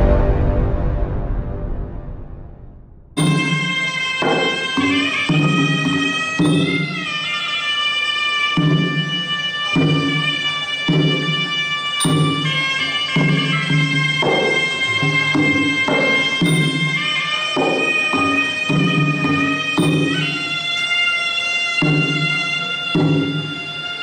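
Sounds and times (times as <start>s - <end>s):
drum beat: 3.2s - 7.3s, 8.6s - 21.0s, 21.8s - 24.0s
reed oboe playing held notes: 3.2s - 24.0s.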